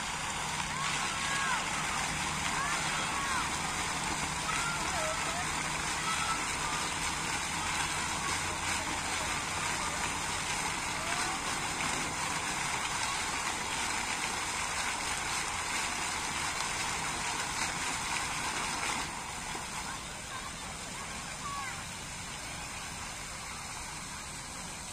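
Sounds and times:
fountain water splashing: 0:00.0 - 0:24.9.

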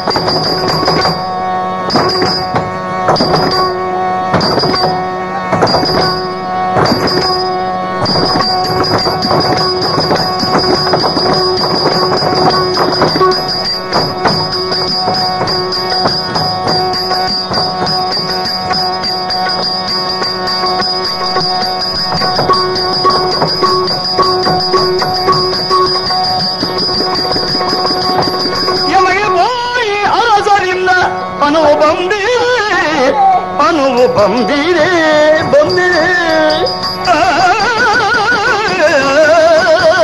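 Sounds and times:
steady drone: 0:00.0 - 0:40.0
dense percussion strokes: 0:01.9 - 0:29.8.

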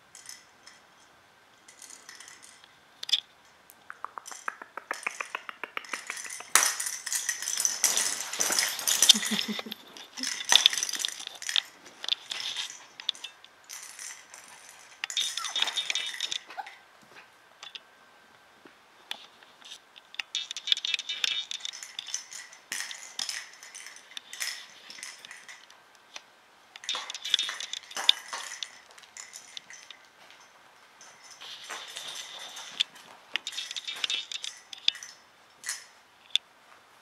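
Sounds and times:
light scratching and clinking: 0:00.0 - 0:03.6, 0:04.2 - 0:17.9, 0:19.1 - 0:36.5
puppies yipping and squealing: 0:15.2 - 0:16.9.

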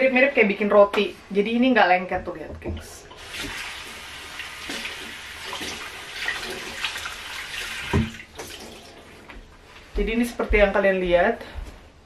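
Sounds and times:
water running from tap: 0:02.7 - 0:09.1.

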